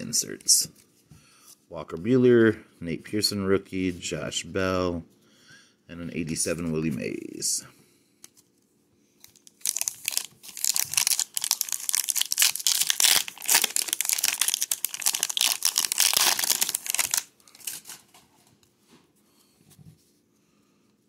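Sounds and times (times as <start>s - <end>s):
wrapper crinkling and tearing: 9.2s - 18.2s.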